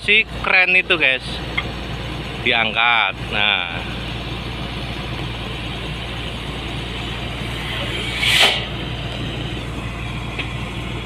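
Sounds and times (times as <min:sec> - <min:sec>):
crane diesel engine running: 0:00.0 - 0:11.0
brief sharp noise: 0:07.9 - 0:08.7.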